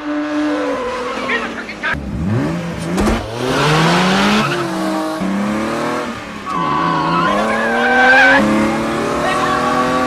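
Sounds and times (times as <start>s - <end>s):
car engines revving: 0.0s - 10.0s
tyres squealing: 6.5s - 10.0s.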